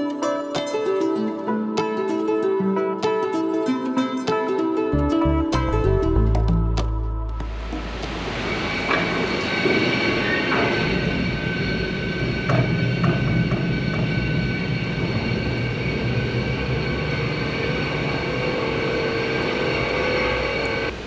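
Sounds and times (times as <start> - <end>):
machinery humming and whining: 7.4 - 21.0.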